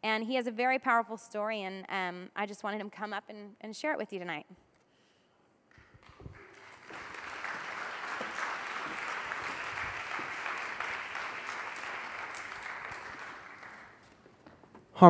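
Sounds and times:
audience applauding: 5.8s - 14.2s.

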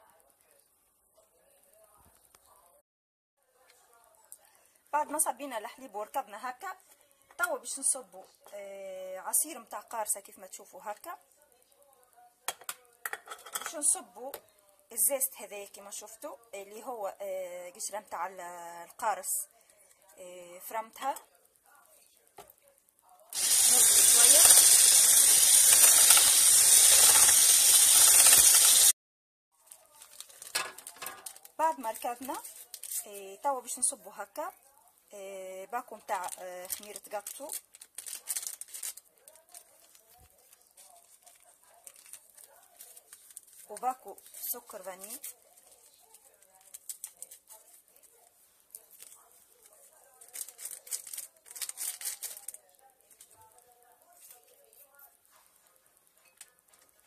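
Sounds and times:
paper sachet tearing: 23.3s - 29.0s, 29.6s - 33.1s, 36.2s - 48.1s, 48.7s - 53.6s
electric hand mixer whisking: 23.4s - 29.0s
paper crinkling and rustling: 29.6s - 33.1s, 36.2s - 57.0s.

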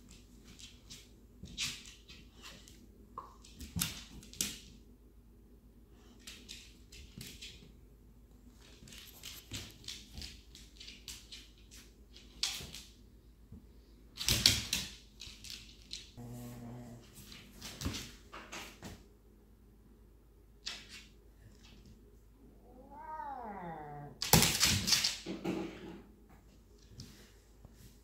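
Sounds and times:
claws clicking on hardwood floor: 8.6s - 13.0s.

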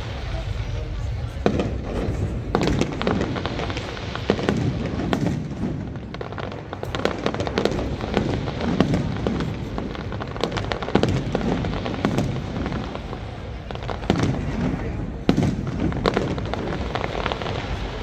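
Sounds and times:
continuous din: 0.0s - 6.5s
fireworks bangs: 0.0s - 18.0s.

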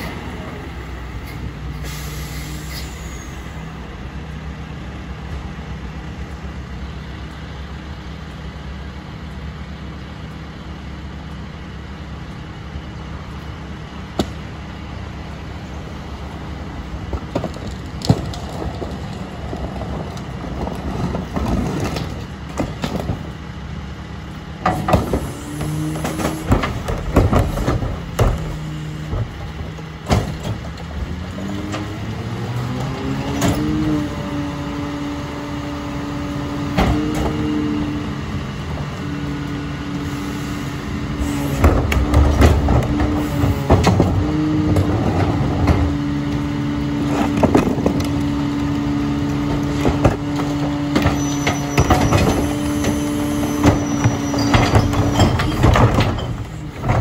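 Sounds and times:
garbage truck engine: 0.0s - 57.0s
clanks and knocks: 24.6s - 32.0s, 41.6s - 46.0s, 49.2s - 57.0s.

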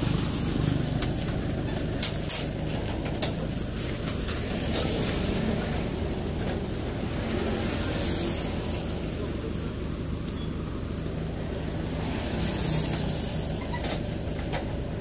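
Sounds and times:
truck engine idling: 0.0s - 15.0s
sharp clicks and knocks: 1.0s - 6.7s, 12.9s - 14.8s.

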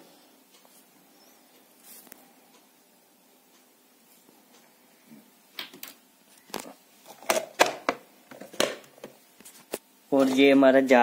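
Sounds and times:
plastic lid shutting: 7.2s - 9.2s.

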